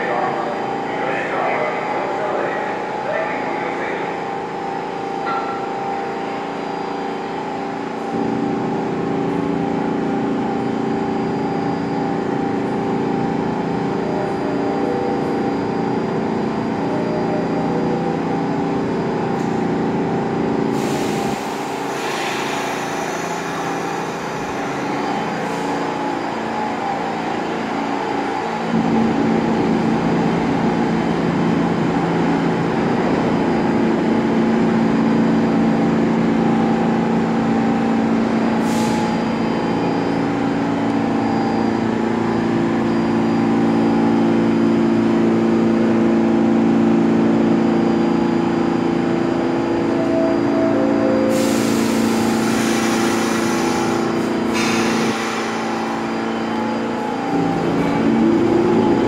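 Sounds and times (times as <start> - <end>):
subway train mechanical hum: 0.0 - 59.0
air hiss: 51.3 - 55.6.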